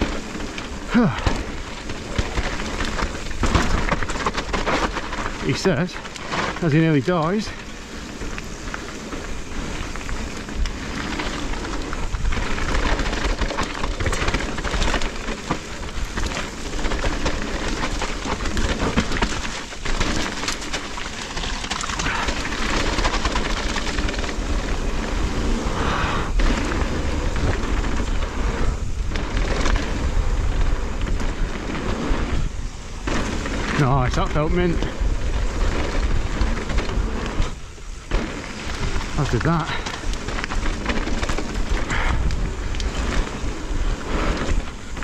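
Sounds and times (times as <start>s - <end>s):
bike rattling over bumps: 0.0s - 45.0s
bike tyres crunching: 0.0s - 45.0s
wind rumble on microphone: 0.0s - 45.0s.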